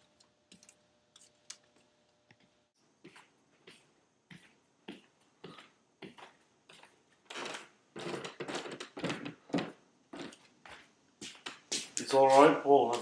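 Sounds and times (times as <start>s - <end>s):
footsteps on wooden stairs: 3.0s - 13.0s.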